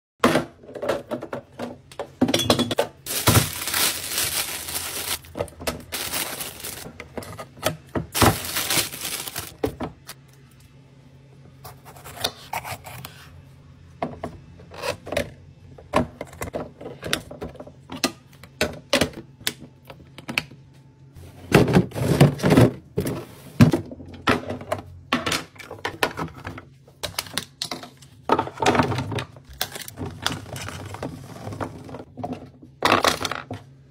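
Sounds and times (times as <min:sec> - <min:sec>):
plastic bins clacking: 0:00.2 - 0:10.1
vegetables rattling into plastic bin: 0:00.4 - 0:07.3, 0:08.0 - 0:10.0.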